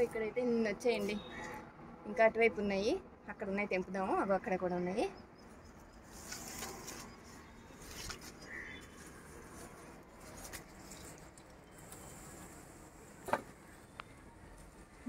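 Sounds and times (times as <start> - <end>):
rustling leaves and stems: 5.4 - 15.0.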